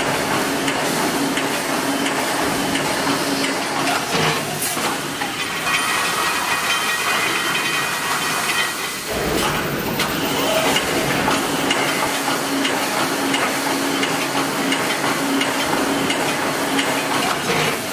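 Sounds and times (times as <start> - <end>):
welding machine hissing: 8.1 - 17.9.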